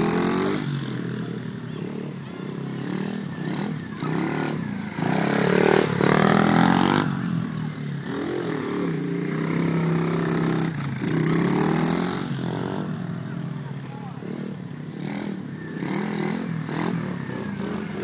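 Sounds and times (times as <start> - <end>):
dirt bike engine revving: 0.0 - 18.0.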